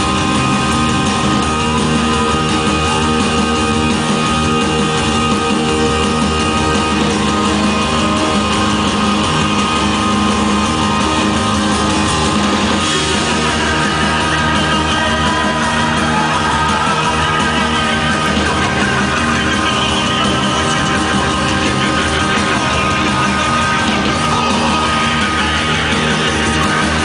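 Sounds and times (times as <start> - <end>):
loud live electronic music: 0.0 - 27.0
person singing into microphone: 12.9 - 27.0.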